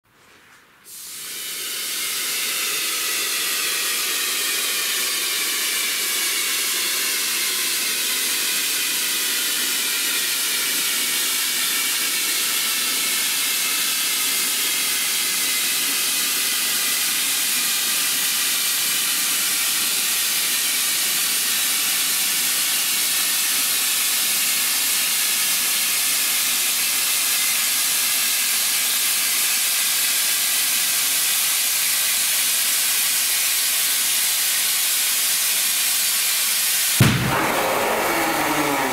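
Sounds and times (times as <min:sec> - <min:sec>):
compressed air hissing: 0:00.9 - 0:23.8.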